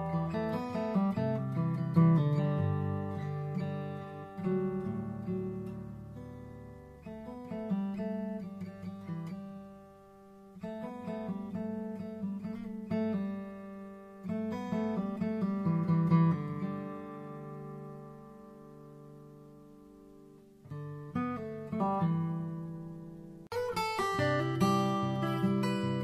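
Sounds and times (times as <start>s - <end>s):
plucked guitar music: 0.0s - 26.0s.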